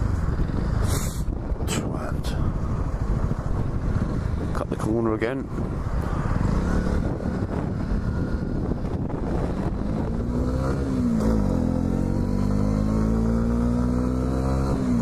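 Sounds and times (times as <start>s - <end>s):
motorcycle engine accelerating: 5.5s - 15.0s.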